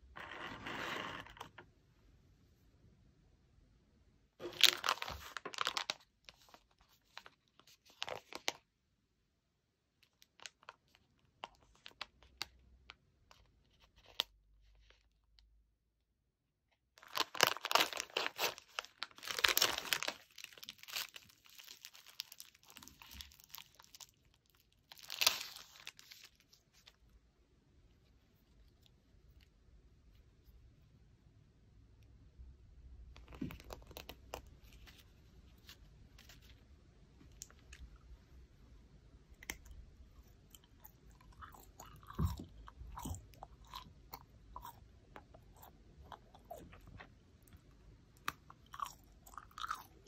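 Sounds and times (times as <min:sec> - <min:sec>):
plastic packaging crinkling: 0:04.4 - 0:08.6, 0:17.0 - 0:27.0, 0:33.2 - 0:36.6
plastic wrapper pulled off: 0:04.4 - 0:08.6, 0:17.0 - 0:26.9, 0:33.2 - 0:35.1.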